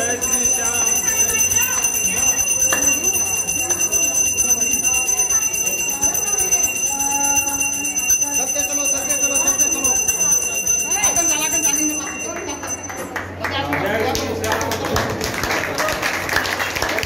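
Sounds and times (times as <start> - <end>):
bell ringing fast: 0.0 - 13.6
crowd voices: 0.0 - 17.0.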